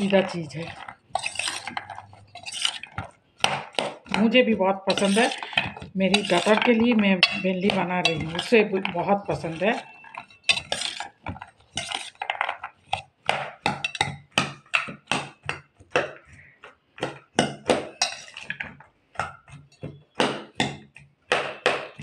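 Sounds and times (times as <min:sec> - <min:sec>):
metal spoon clinking in steel bowl: 0:04.9 - 0:11.0, 0:13.8 - 0:14.1, 0:18.0 - 0:18.4.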